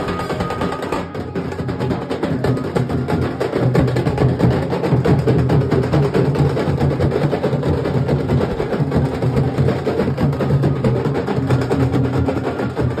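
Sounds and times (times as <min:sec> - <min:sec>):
loud barrel drums beating: 0:00.0 - 0:13.0.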